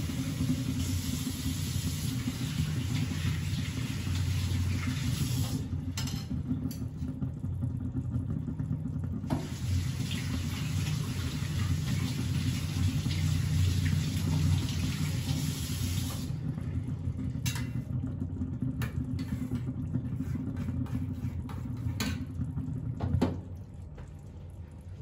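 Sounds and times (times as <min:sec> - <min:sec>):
bubbles popping: 0:22.2 - 0:25.0.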